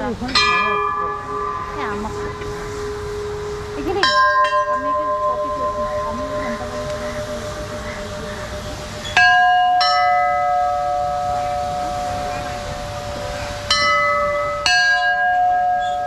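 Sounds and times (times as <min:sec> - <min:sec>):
murmur of voices: 0:00.0 - 0:16.0
temple bells ringing: 0:00.0 - 0:16.0.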